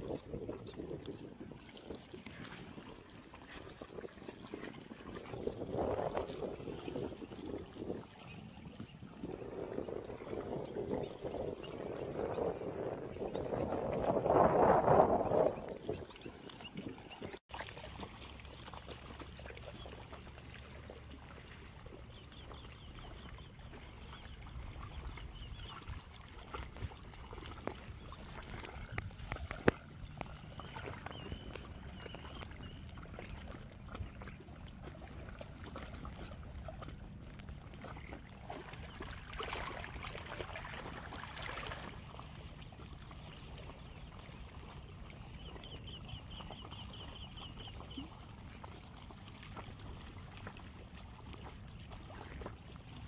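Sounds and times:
wind on microphone: 0.0 - 17.4, 23.7 - 35.0.

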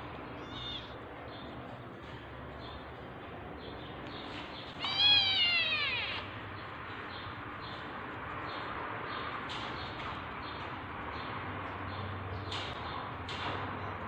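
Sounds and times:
cat meowing: 0.3 - 1.0, 4.8 - 6.3.

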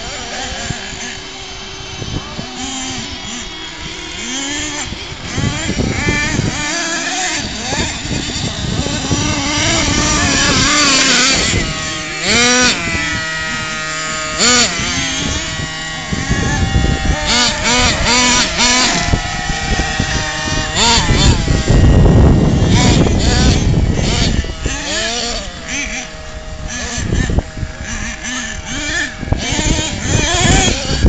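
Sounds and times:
small engine revving: 0.0 - 31.0.

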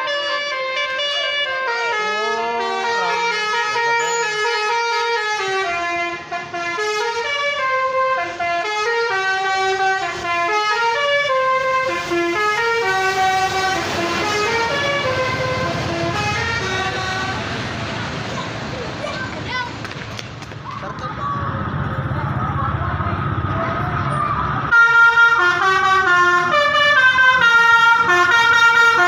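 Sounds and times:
bus horn playing melody: 0.0 - 17.8, 24.7 - 29.0
bus passing rumble: 0.0 - 29.0.

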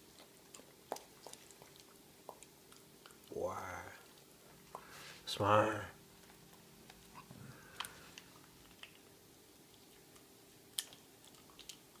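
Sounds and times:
dog chewing: 0.0 - 3.4, 6.2 - 12.0.

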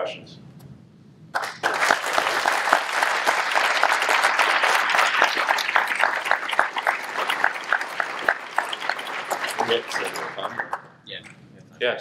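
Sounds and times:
audience applauding: 1.4 - 11.0.

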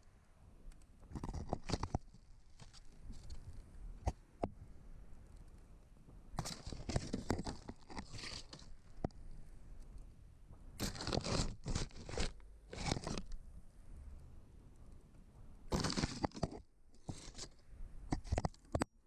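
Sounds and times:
camera scraping against brick: 1.1 - 3.6, 6.4 - 9.2, 10.8 - 13.4, 15.7 - 18.9.

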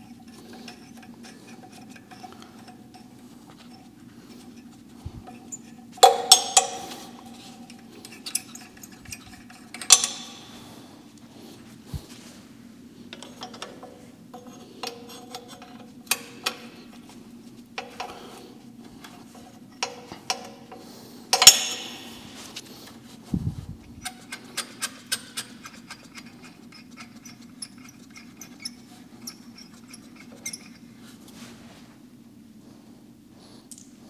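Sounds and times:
socket wrench clicking: 6.0 - 7.0, 8.2 - 10.4, 21.3 - 22.1.

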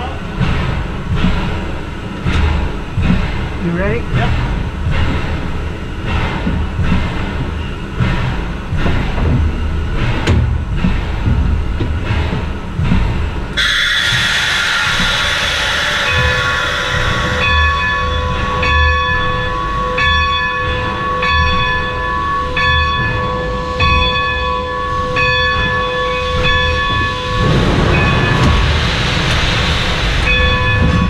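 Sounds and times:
loud hiss of steam: 13.6 - 18.6, 27.4 - 31.0
locomotive bell ringing: 13.6 - 28.7, 30.2 - 31.0.

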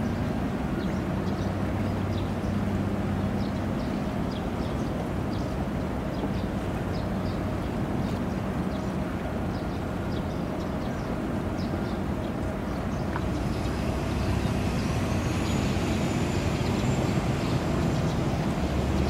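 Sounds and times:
ship engines rumbling: 11.3 - 19.0
thin high whine: 13.2 - 19.0.

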